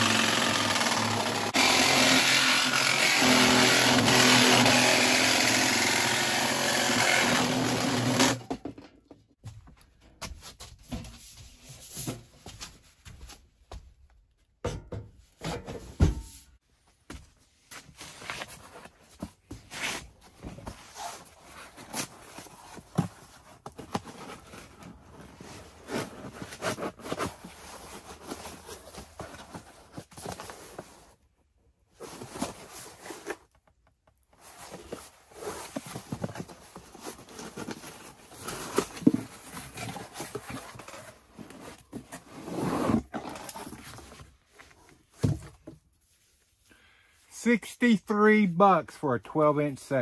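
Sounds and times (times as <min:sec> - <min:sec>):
cardboard rustling and scraping: 0:17.5 - 0:46.6.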